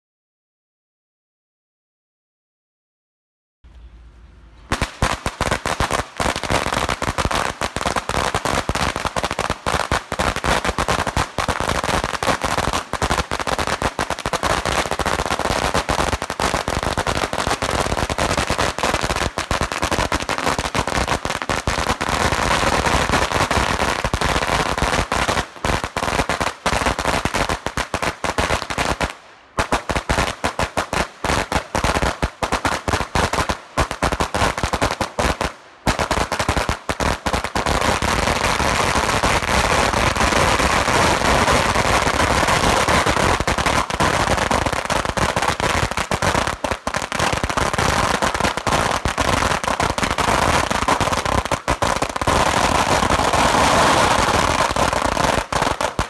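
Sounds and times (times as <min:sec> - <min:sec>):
firecrackers crackling: 0:04.6 - 0:56.0.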